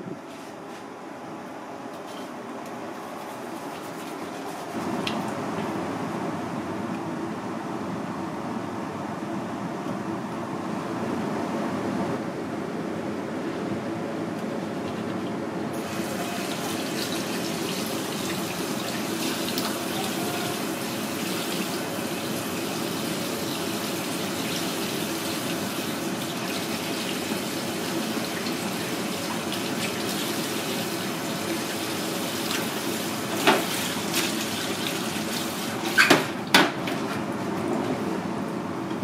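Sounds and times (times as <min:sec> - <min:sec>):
tap water running onto hands: 0:15.8 - 0:36.0.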